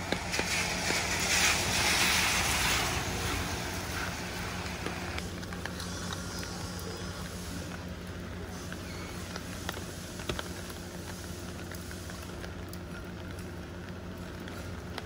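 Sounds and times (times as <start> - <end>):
vehicle passing: 0.0 - 5.2.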